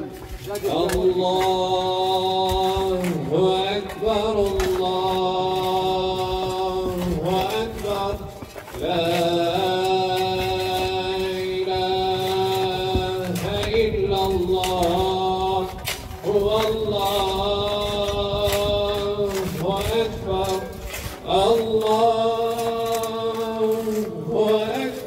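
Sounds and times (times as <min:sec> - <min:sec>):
man chanting: 0:00.0 - 0:25.0.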